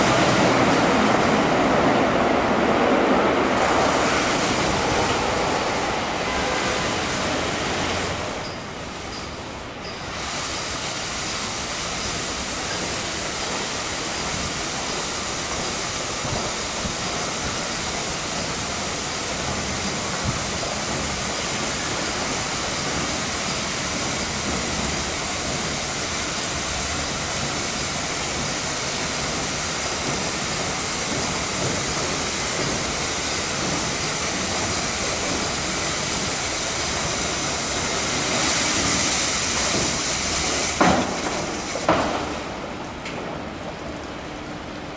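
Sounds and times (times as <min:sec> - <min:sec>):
water spray hissing: 0:10.1 - 0:41.8.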